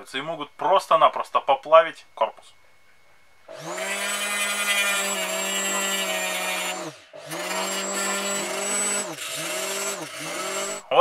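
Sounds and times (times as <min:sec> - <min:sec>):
rotary tool grinding whine: 0:03.5 - 0:11.0.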